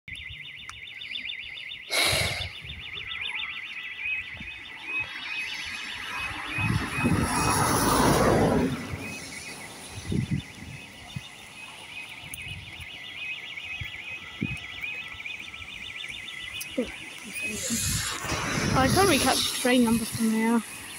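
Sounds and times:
level crossing alarm warble: 0.1 - 20.9
rushing noise: 5.0 - 10.8, 17.3 - 20.9.

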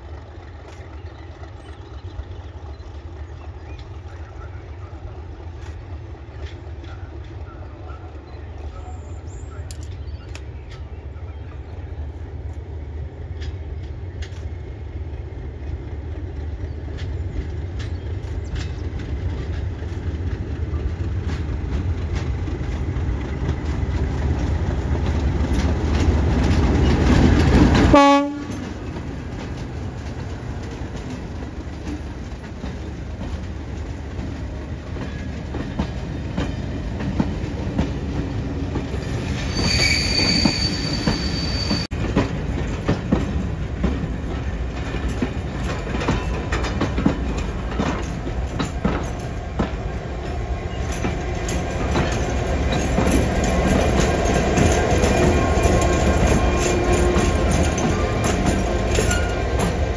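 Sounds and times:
diesel locomotive engine rumbling: 0.0 - 59.9
faint high squeal: 39.1 - 41.9
coaches rolling with wheel clicks: 42.1 - 59.9.

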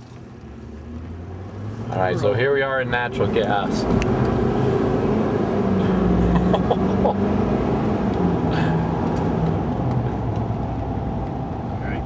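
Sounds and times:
diesel engine at full throttle: 0.0 - 12.0.

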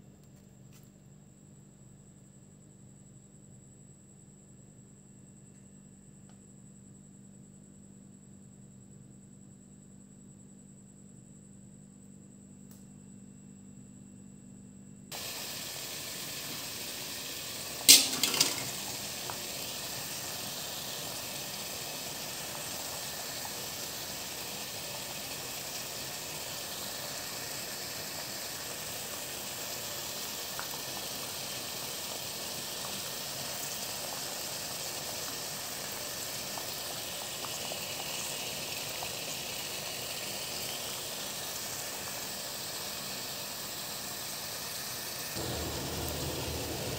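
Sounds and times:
water boiling and steaming in pot: 15.1 - 46.9
loud metal clank: 17.9 - 18.8.

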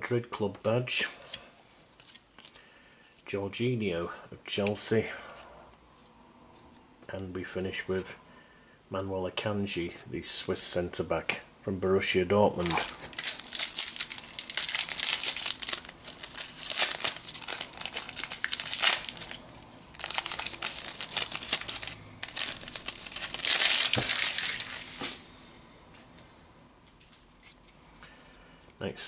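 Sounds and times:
foil pack crinkling: 12.6 - 25.2.

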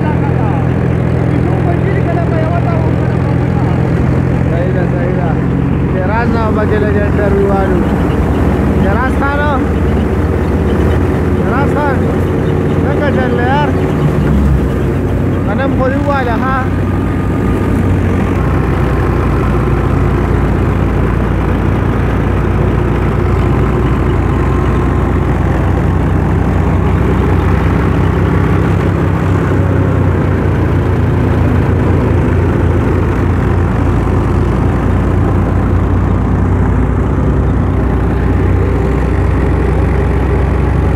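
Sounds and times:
tractor diesel engine running: 0.0 - 40.9.

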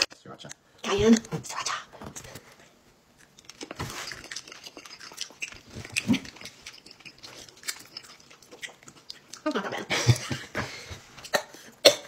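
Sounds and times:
mouth clicks and smacks chewing: 3.2 - 9.5.

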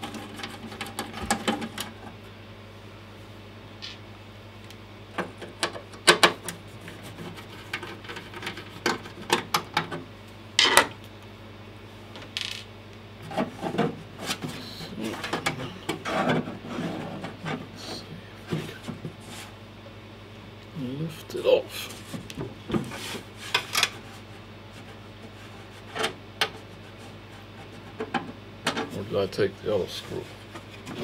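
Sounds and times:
low steady hum: 0.0 - 31.0
rubbing and scraping on desk: 16.0 - 19.6, 22.8 - 28.1.

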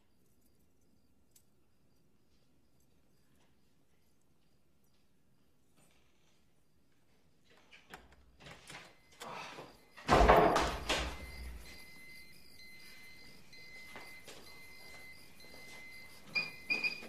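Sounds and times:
faint steady high tones: 0.1 - 17.0
door knocking and thudding open: 10.0 - 11.4.

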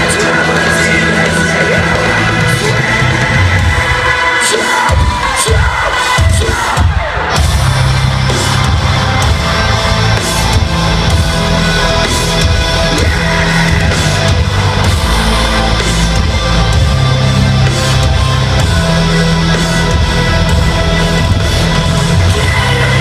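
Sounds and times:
live metal band playing: 0.0 - 23.0.

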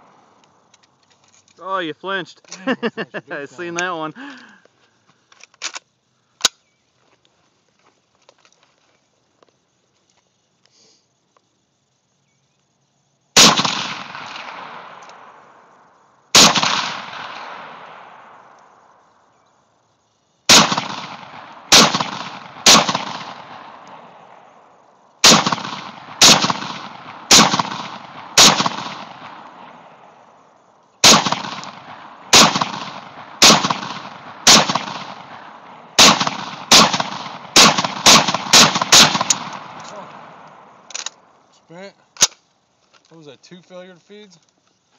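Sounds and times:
rifle shots with rolling echo: 13.3 - 19.3, 20.4 - 41.4.

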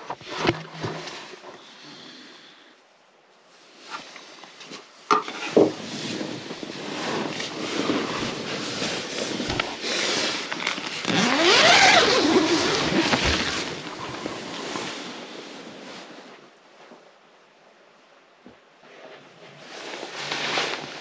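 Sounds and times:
tent fabric rustling: 0.0 - 1.5, 3.4 - 17.1, 18.8 - 21.0
zipper being drawn: 11.0 - 14.6.

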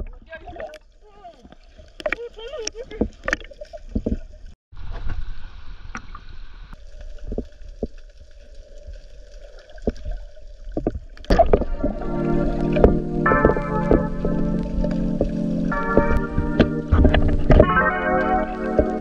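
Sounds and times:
underwater rumble: 0.0 - 19.0
underwater knocks: 2.9 - 4.3, 9.8 - 19.0
bubbling water: 5.9 - 19.0.

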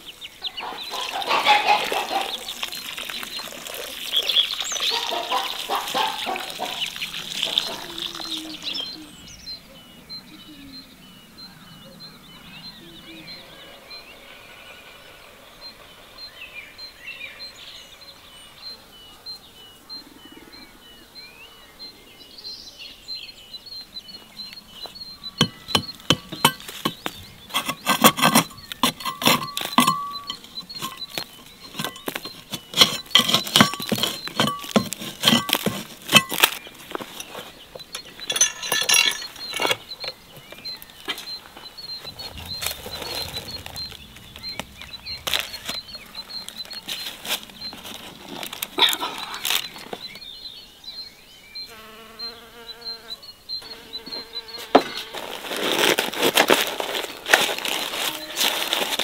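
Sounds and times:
small bird calling: 0.0 - 55.9
cleaver knocking on clay crust: 25.4 - 36.6.

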